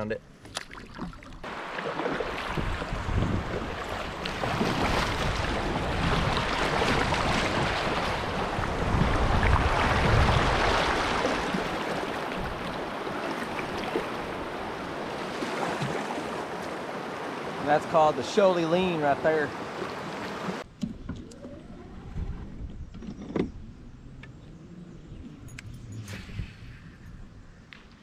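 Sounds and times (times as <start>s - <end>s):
paddle splashes: 0.5s - 21.2s
river rushing: 1.4s - 20.6s
wind buffeting microphone: 2.2s - 15.2s, 21.4s - 28.0s.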